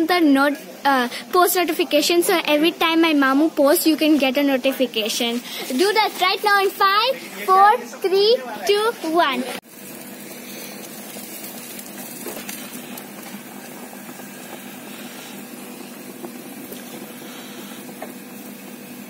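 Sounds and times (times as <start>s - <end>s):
chicken sizzling on grill: 9.3s - 19.0s.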